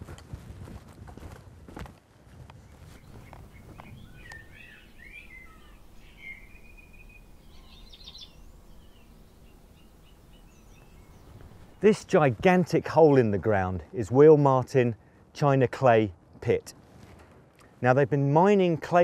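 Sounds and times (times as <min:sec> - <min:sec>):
birds chirping and calling: 0:02.9 - 0:12.0
rapid bird trill: 0:03.0 - 0:11.8
low outdoor rumble: 0:03.0 - 0:12.5.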